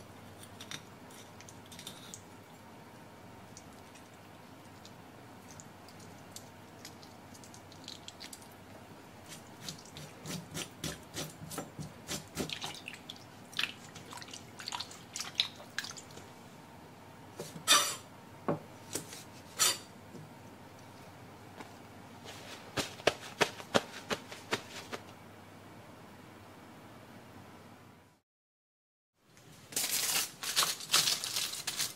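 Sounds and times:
small wet clicks: 0:03.5 - 0:08.6.

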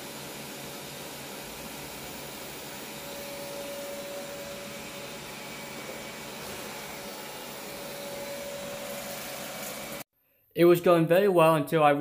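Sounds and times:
robot vacuum whirring: 0:01.9 - 0:10.0
steady whine: 0:02.9 - 0:10.0.

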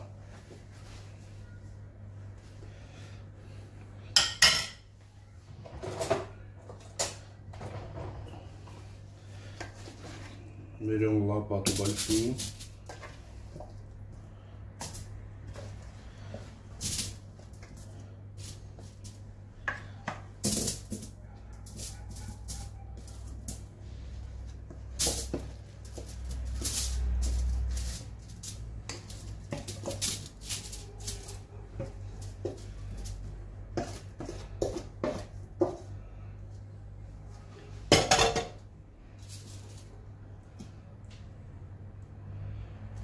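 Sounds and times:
aluminium foil crinkling: 0:11.7 - 0:12.8, 0:25.0 - 0:33.2
food dropping onto foil: 0:20.4 - 0:21.1.

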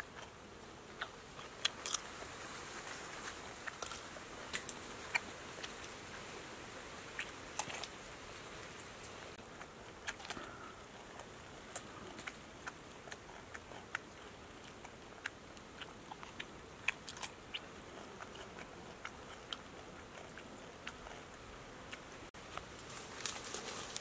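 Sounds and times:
person chewing crunchy food: 0:01.0 - 0:02.3, 0:02.9 - 0:05.8, 0:09.4 - 0:22.0.

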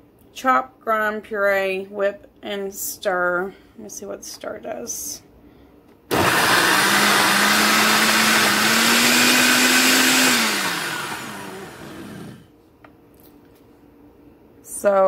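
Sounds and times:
blender motor spinning: 0:06.1 - 0:12.5.

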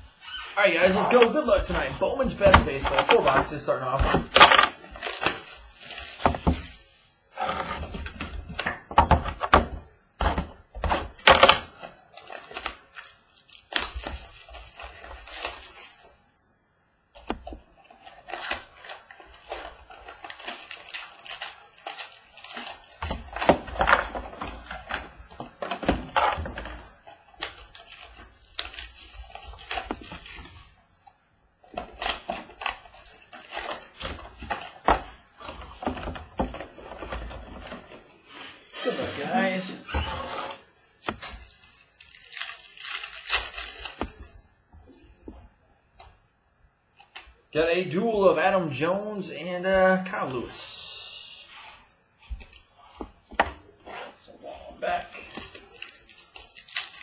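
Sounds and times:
card packs rustling: 0:00.3 - 0:16.2, 0:17.4 - 0:45.2, 0:49.1 - 0:57.0
cardboard boxes torn open: 0:00.6 - 0:16.2, 0:17.9 - 0:30.9, 0:31.7 - 0:44.5, 0:55.0 - 0:57.0.

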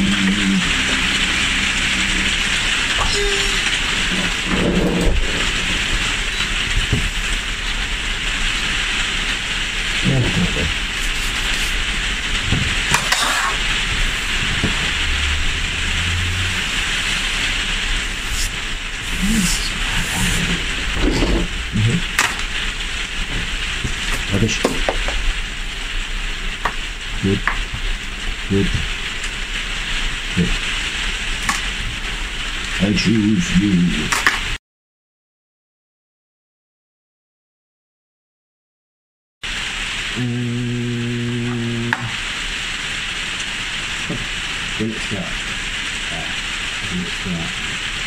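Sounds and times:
short low sounds: 0:00.0 - 0:05.8, 0:13.8 - 0:22.2, 0:40.1 - 0:42.2
rain hissing: 0:00.0 - 0:34.6, 0:39.4 - 0:48.0.

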